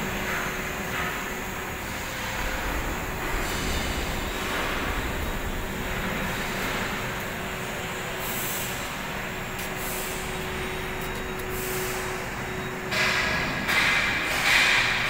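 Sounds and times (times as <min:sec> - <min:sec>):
machinery hum and hiss: 0:00.0 - 0:15.0.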